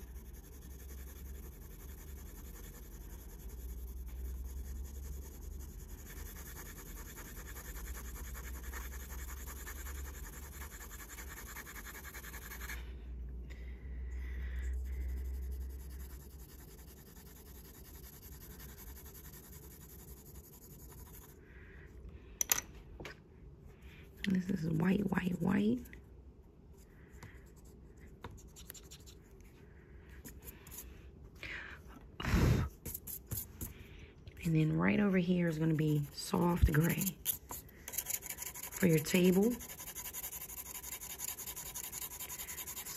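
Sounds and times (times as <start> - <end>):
pencil scratching on paper: 0.0 - 12.8, 14.7 - 21.4, 34.8 - 42.9.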